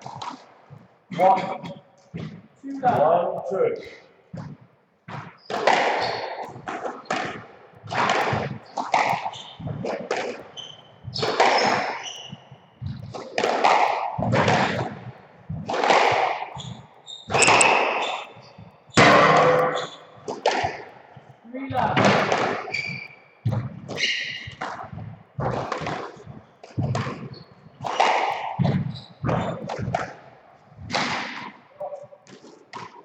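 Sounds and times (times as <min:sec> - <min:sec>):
squash ball hits: 0:00.0 - 0:21.0, 0:21.7 - 0:31.6, 0:32.2 - 0:33.0
shoe squeaks on wooden floor: 0:03.8 - 0:13.4, 0:16.1 - 0:30.2.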